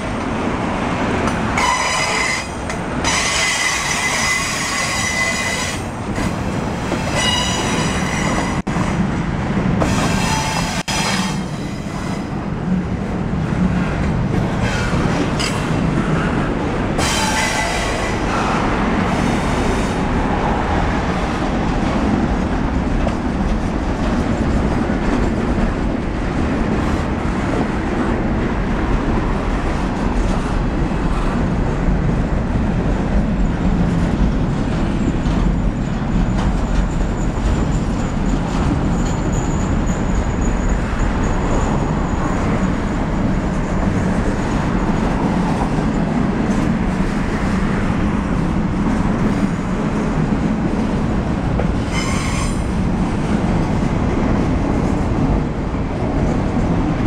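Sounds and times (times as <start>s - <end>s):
train wheels rumbling on rails: 0.0s - 57.0s
wheel screech: 1.6s - 5.9s, 7.1s - 8.6s, 51.9s - 52.7s.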